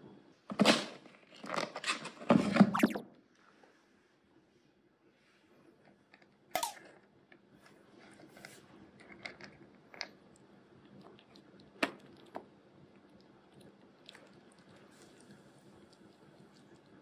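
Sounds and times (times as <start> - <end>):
kitten crunching kibble: 7.9 - 17.0.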